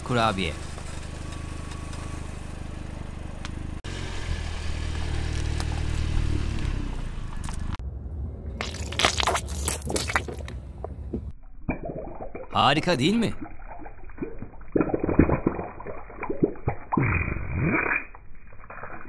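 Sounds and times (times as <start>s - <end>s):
car humming: 0.0s - 8.6s
foil-wrapped cheese crushed: 8.6s - 10.4s
cookies crunching under tyre: 8.6s - 11.0s.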